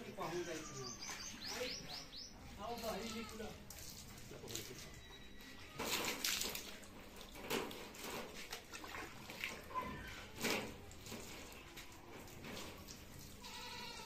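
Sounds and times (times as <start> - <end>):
water splashing: 2.8 - 13.7.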